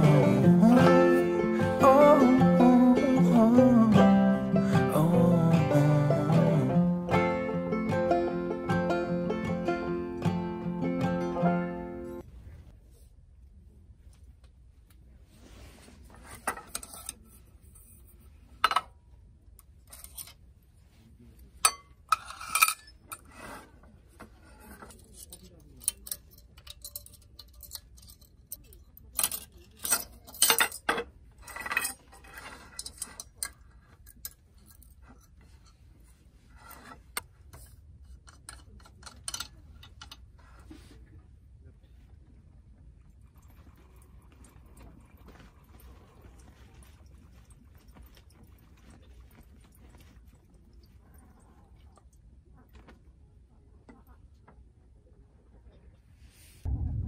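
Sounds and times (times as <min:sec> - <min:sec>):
clinks of metal and glass objects: 0:21.6 - 0:23.3, 0:25.8 - 0:35.0.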